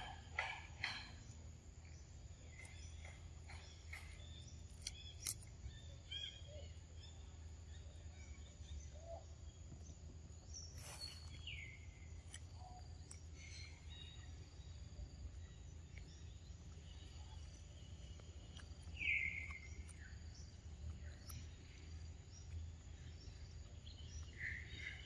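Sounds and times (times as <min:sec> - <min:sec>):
steady low hum: 0:00.0 - 0:25.0
small clicks and ticks: 0:02.4 - 0:05.8, 0:12.1 - 0:13.3, 0:15.9 - 0:23.0
short bird chirps: 0:10.6 - 0:12.8.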